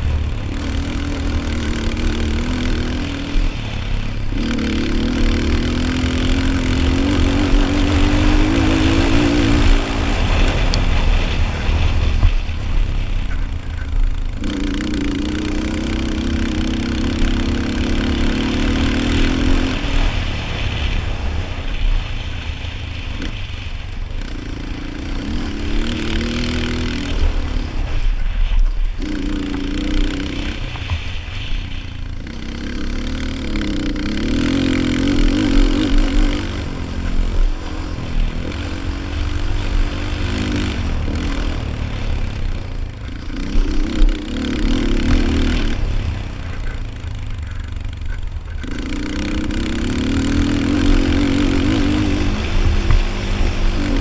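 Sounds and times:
quad engine revving: 0.0s - 22.4s, 23.0s - 54.0s
wind rumble on microphone: 6.0s - 14.5s.

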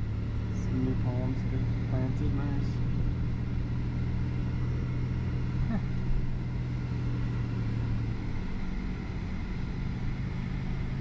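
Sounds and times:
car engine hum from inside cabin: 0.0s - 11.0s
road hum: 0.0s - 11.0s.

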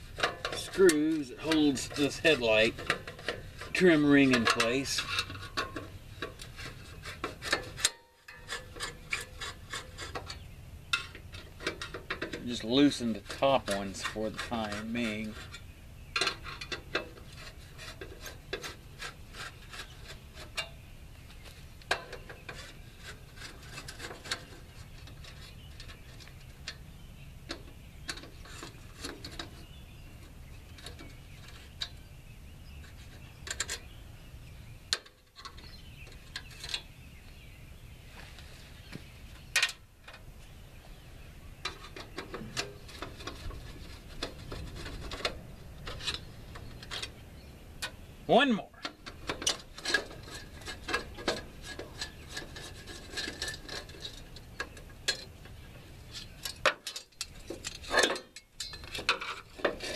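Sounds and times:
screwdriver clicking and scraping metal: 0.1s - 15.6s, 41.6s - 47.2s, 48.8s - 55.4s, 56.1s - 59.9s.

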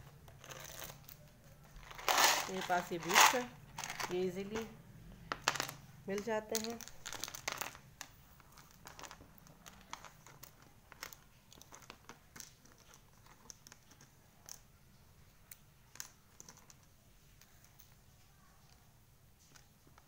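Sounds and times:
craft beads clicking and rattling: 0.2s - 4.6s, 5.3s - 14.7s.

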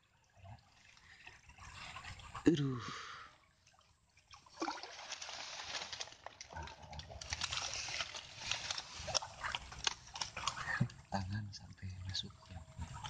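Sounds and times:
water sloshing: 0.0s - 13.0s
mud squelching: 4.4s - 11.3s
small clicks and crackles: 4.8s - 11.1s.

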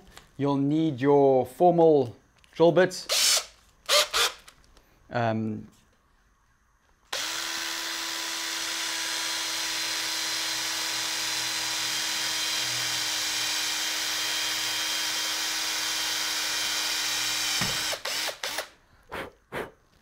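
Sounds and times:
cordless drill whine: 3.1s - 4.5s, 7.1s - 18.7s.

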